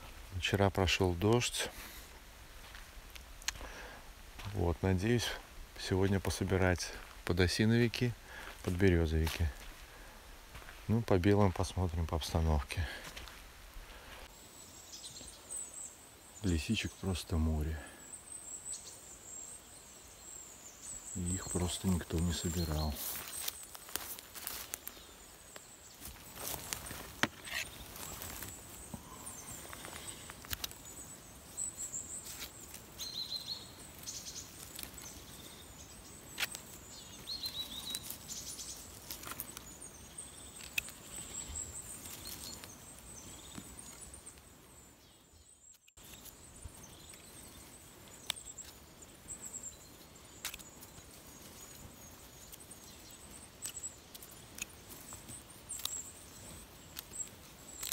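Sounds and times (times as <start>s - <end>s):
hands rustling in moss: 0.0s - 14.4s, 21.2s - 44.7s, 45.7s - 57.9s
faint bird chirps: 13.9s - 57.9s.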